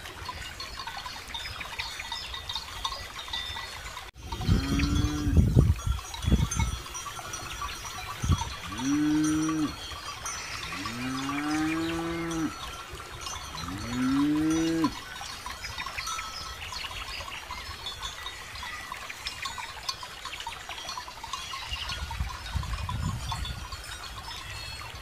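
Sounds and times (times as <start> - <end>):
cow bells jingling: 0.0 - 25.0
cattle mooing: 8.6 - 9.8, 10.6 - 12.6, 13.6 - 15.0.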